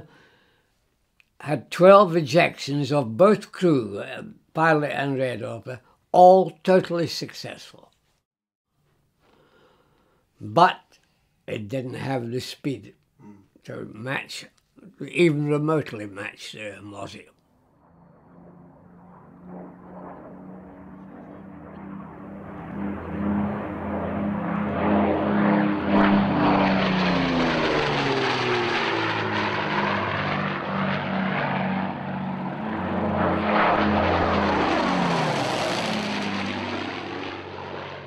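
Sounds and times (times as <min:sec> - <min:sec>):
propeller aircraft flying past: 0:17.5 - 0:38.0.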